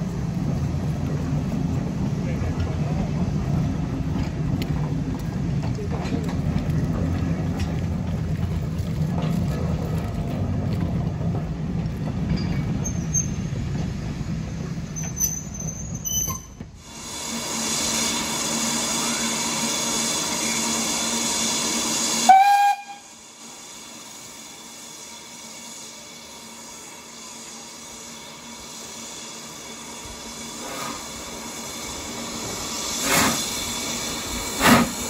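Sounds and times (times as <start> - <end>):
train coaches rumbling by: 0.0 - 35.0
steam hiss: 16.8 - 35.0
steam whistle blast: 22.2 - 23.2.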